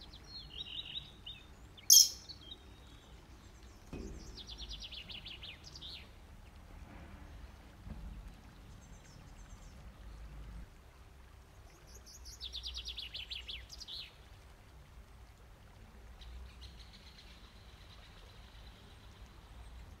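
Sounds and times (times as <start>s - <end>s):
birds chirping: 0.4s - 2.9s
bird trill falling in pitch: 1.9s - 2.3s.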